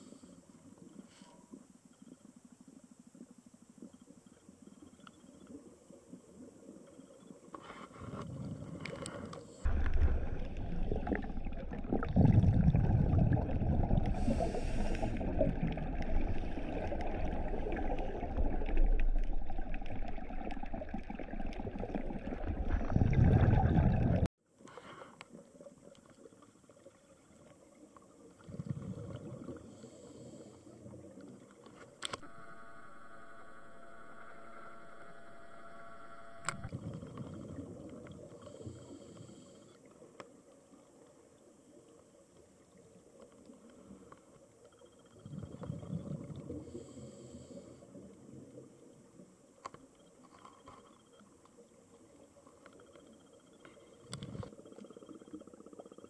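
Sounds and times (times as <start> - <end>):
underwater noise: 0.0 - 56.0
bubbles rushing and gurgling: 9.7 - 24.3, 28.3 - 29.7, 36.6 - 38.4, 45.2 - 46.7
steady hum: 32.1 - 36.8.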